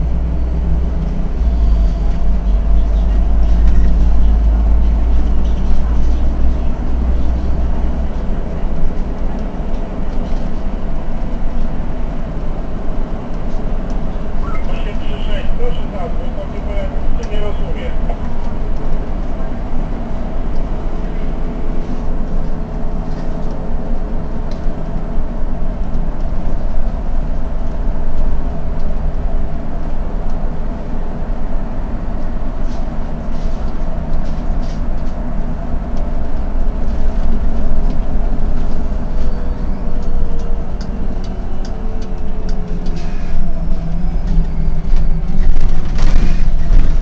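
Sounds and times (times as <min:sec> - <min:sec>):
bus engine drone: 0:00.0 - 0:47.0
road noise: 0:00.0 - 0:47.0
descending whine: 0:35.5 - 0:47.0.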